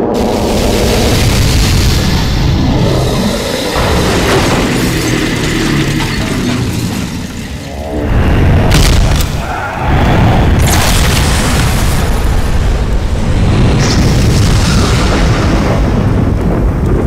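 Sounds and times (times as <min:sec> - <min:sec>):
sharp crashing impacts: 0:00.0 - 0:09.4
explosion booms and rumbling: 0:00.0 - 0:17.0.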